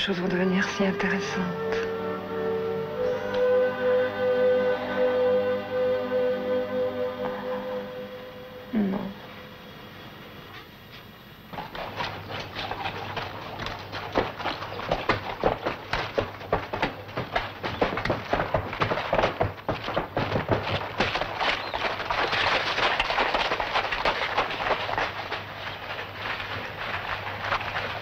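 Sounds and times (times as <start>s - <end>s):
horse hoofbeats on dirt: 11.5s - 28.0s.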